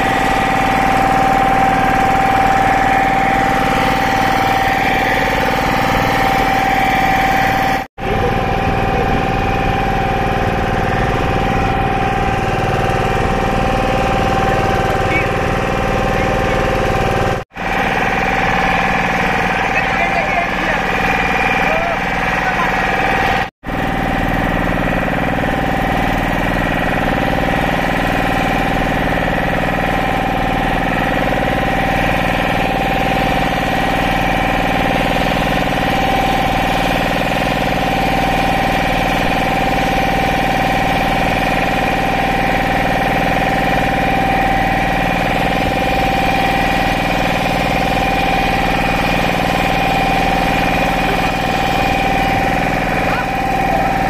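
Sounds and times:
motorboat engine droning: 0:00.0 - 0:54.0.

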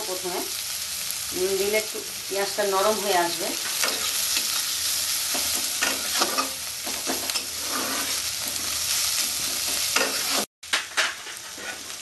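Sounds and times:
onions sizzling in oil: 0:00.0 - 0:12.0
metal spatula scraping pan: 0:03.6 - 0:12.0.

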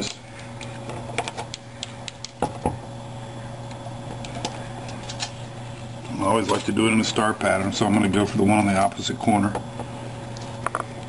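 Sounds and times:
faint steady hum: 0:00.0 - 0:11.0.

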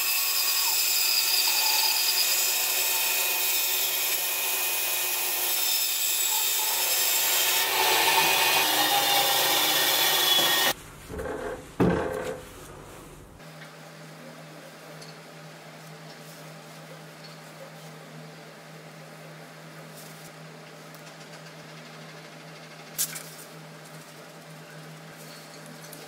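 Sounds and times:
band saw cutting wood: 0:00.0 - 0:10.8
sharp knocks: 0:11.1 - 0:12.4.

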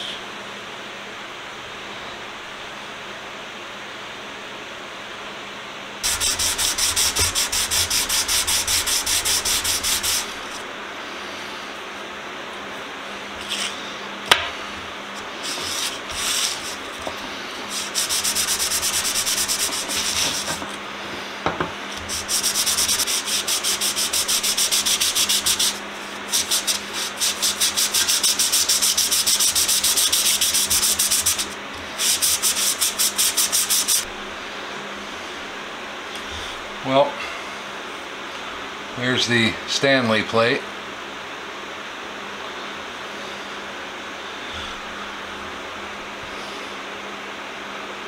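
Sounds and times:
metal plate rubbing on sandpaper: 0:06.0 - 0:10.6, 0:15.4 - 0:17.0, 0:17.7 - 0:20.6, 0:22.0 - 0:34.1.

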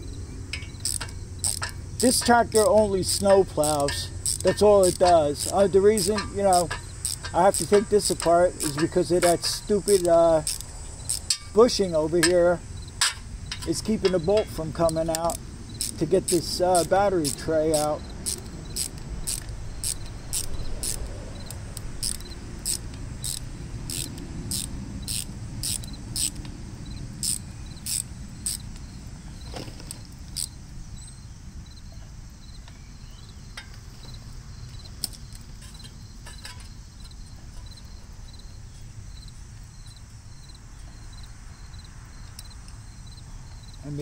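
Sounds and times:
insects chirping: 0:00.0 - 0:44.0
small sharp clicks: 0:00.5 - 0:26.6.

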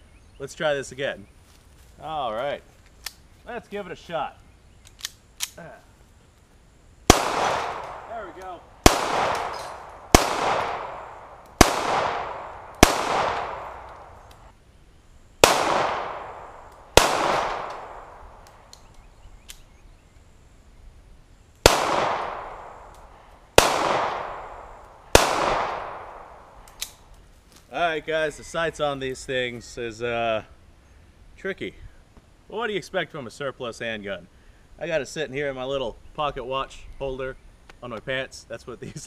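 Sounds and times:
pistol shots echoing: 0:07.1 - 0:14.5, 0:15.4 - 0:18.4, 0:21.6 - 0:23.0, 0:23.6 - 0:26.9.

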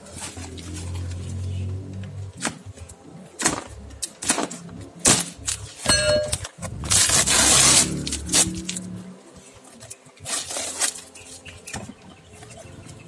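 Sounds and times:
short metallic ring: 0:05.9 - 0:06.4
cardboard tearing: 0:06.6 - 0:08.9, 0:10.2 - 0:11.3.

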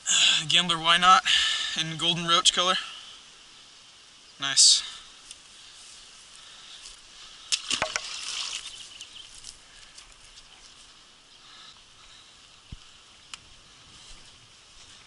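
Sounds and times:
faint outdoor ambience: 0:00.0 - 0:15.0
fish splashing in water: 0:07.5 - 0:09.3.

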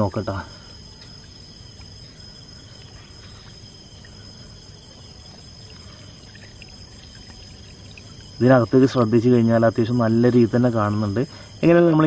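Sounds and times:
crickets calling: 0:00.0 - 0:12.0.

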